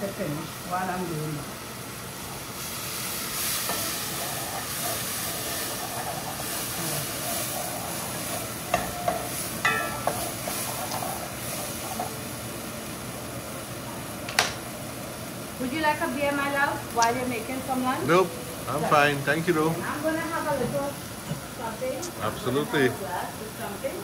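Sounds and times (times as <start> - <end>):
food sizzling in oil: 0.0 - 24.0
cookware clinking: 8.7 - 11.0.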